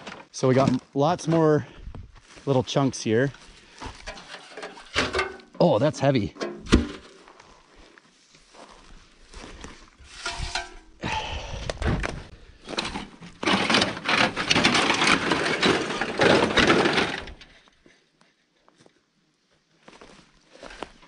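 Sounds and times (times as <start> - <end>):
rustling and crunching dry brush: 1.6 - 4.9, 6.9 - 11.0.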